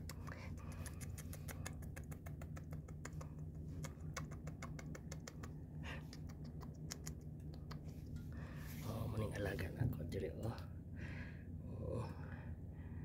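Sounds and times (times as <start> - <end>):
cat clicking and scratching on rug: 0.0 - 8.2
low steady hum: 0.0 - 13.0.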